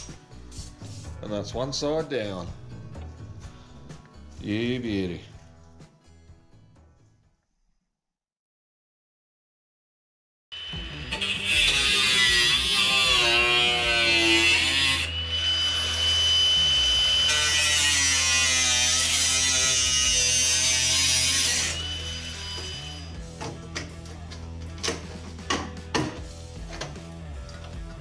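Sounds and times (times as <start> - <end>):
angle grinder high whine: 10.5 - 23.3
angle grinder cutting metal: 10.6 - 23.3.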